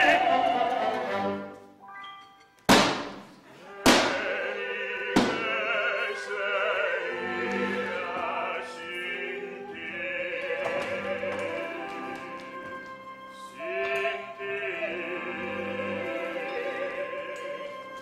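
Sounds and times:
operatic singing with vibrato: 0.0s - 1.6s, 3.4s - 18.0s
small orchestra playing: 0.0s - 2.6s, 3.7s - 18.0s
sharp percussive hit: 2.7s - 4.3s.

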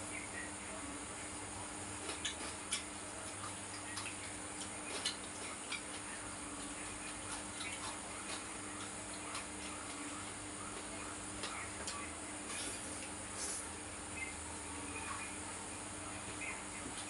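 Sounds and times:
low steady hum: 0.0s - 17.0s
chewing and fingers tapping plates: 2.0s - 13.2s.

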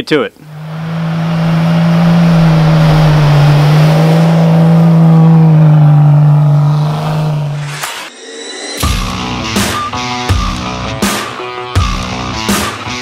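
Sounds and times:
tyres on snow: 0.4s - 7.9s
car engine drone: 0.4s - 8.1s.

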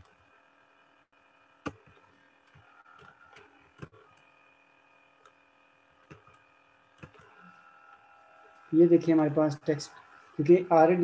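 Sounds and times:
keyboard and mouse clicks: 1.6s - 4.3s, 6.0s - 7.5s.

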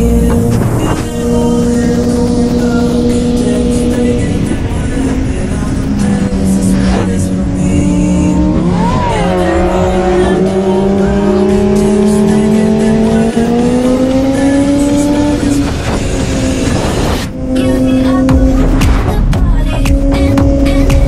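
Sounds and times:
motorcycle engine running hard: 0.0s - 21.0s
wind rush: 14.6s - 17.8s.

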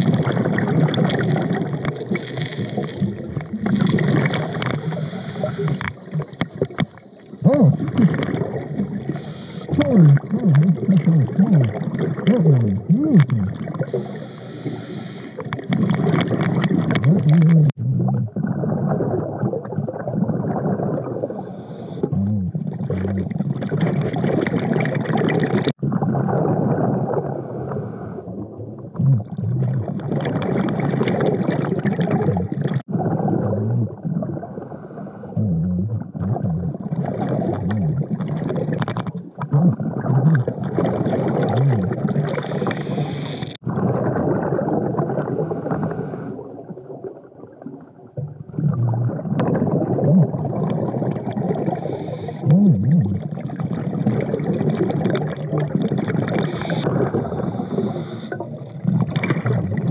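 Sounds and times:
gurgling bubbles: 0.0s - 59.9s
diver breathing through regulator: 4.3s - 7.7s, 9.0s - 9.9s, 13.8s - 15.5s, 21.2s - 22.2s, 42.3s - 43.6s, 51.6s - 52.6s, 56.4s - 58.6s.

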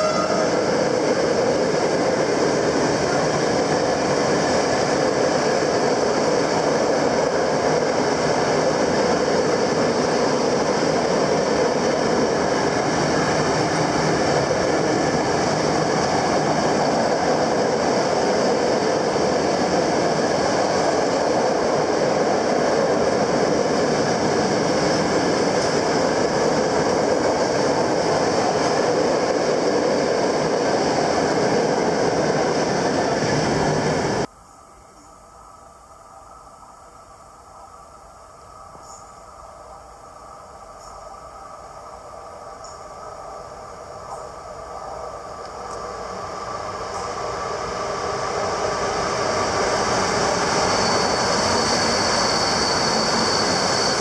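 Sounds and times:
train rumbling past on rails: 0.0s - 34.3s, 36.1s - 54.0s.

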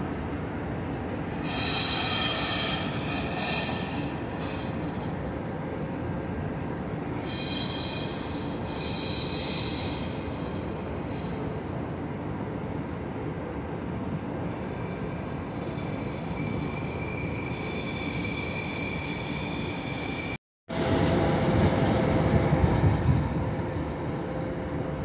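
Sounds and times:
train wheels squealing: 1.3s - 5.9s, 7.1s - 11.8s, 14.5s - 20.4s, 22.1s - 23.4s.

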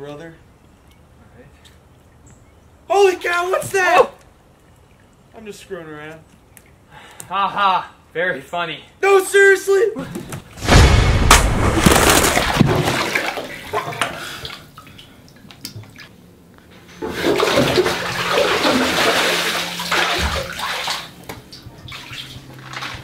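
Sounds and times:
big water splash: 10.6s - 13.6s, 17.0s - 21.2s
water sloshing in a bathtub: 12.4s - 16.2s, 17.0s - 23.0s.

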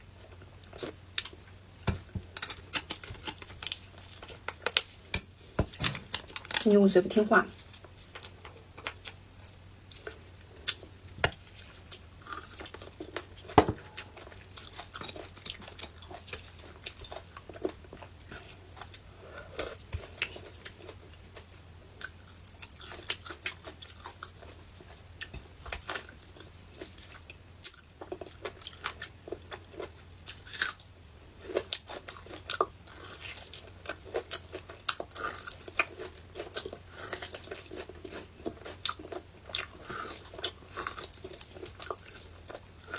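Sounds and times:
chewing with mouth clicks: 11.5s - 30.8s, 31.4s - 42.9s.

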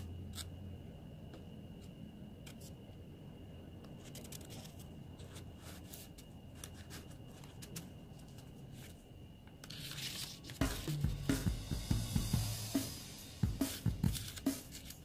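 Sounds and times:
paper pages rustling: 4.0s - 9.0s, 9.6s - 11.0s, 14.0s - 15.0s.

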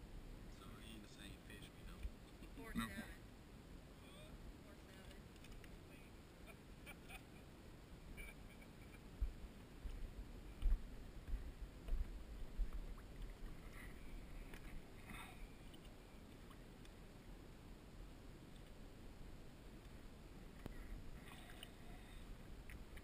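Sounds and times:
water sloshing and splashing: 9.8s - 16.9s.

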